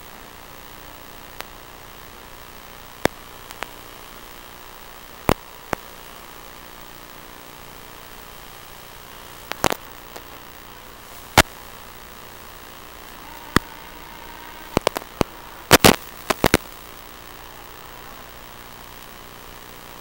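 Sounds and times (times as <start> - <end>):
microphone hiss: 0.0 - 20.0
sharp crackling pops: 3.0 - 3.8, 9.4 - 10.4, 13.0 - 17.1.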